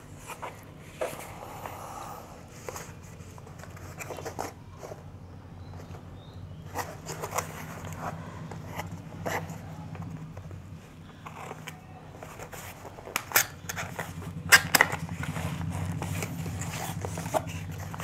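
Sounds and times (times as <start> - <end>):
steady low hum: 0.0 - 18.0
cardboard box scraping and clicking: 2.6 - 5.1, 6.6 - 10.4, 11.2 - 18.0
cardboard flap snapping: 11.2 - 18.0.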